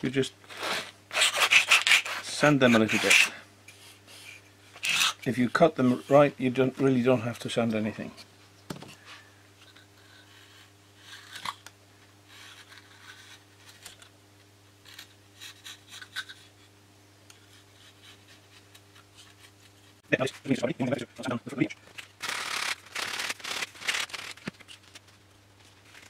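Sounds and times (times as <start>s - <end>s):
hobby knife scratching and snipping: 0.5s - 3.4s, 14.8s - 16.5s, 22.2s - 24.8s.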